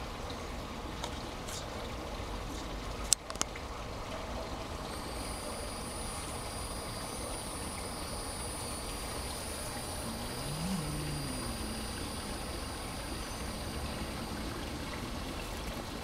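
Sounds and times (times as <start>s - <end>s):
faint high whine: 4.8s - 16.0s.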